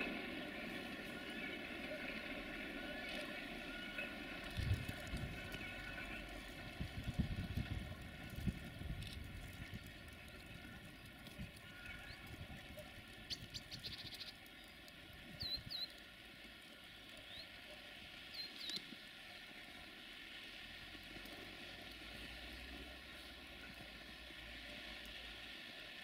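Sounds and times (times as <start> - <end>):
faint locomotive hum: 0.0 - 26.0
small birds chirping: 13.2 - 16.0, 18.3 - 19.0.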